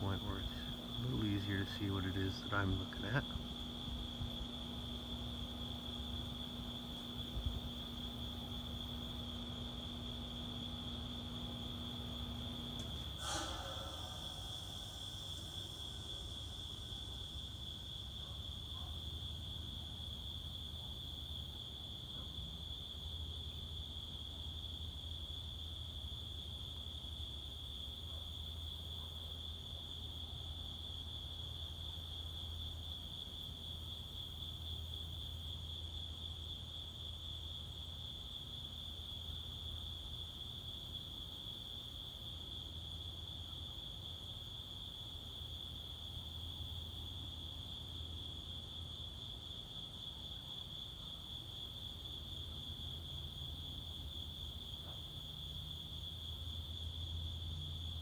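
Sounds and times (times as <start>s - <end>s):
low hum: 0.0s - 18.9s
night insects trilling: 0.0s - 58.0s.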